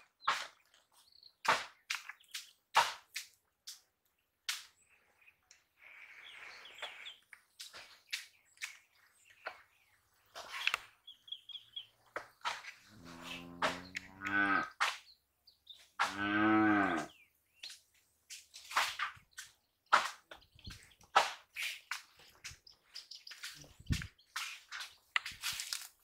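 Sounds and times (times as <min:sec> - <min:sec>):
bird chirping: 0:00.0 - 0:02.7, 0:04.1 - 0:25.3
cow mooing: 0:13.0 - 0:14.7, 0:16.1 - 0:17.1.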